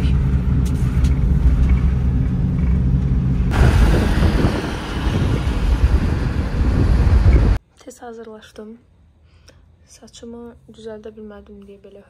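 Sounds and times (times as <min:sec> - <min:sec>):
road noise: 0:00.0 - 0:07.6
vehicle engine rumble: 0:00.0 - 0:07.6.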